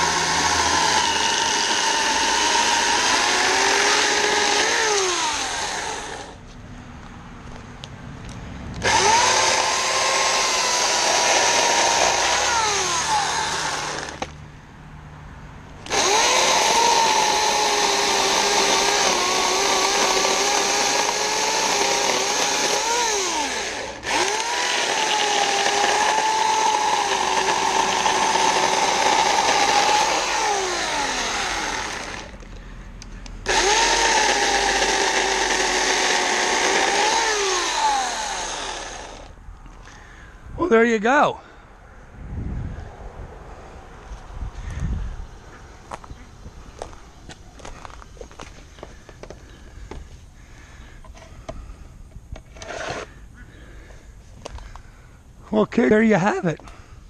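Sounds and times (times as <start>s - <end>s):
electric chainsaw cutting logs: 0.0s - 6.4s, 8.8s - 14.4s, 15.8s - 32.4s, 33.4s - 39.4s, 52.4s - 53.1s.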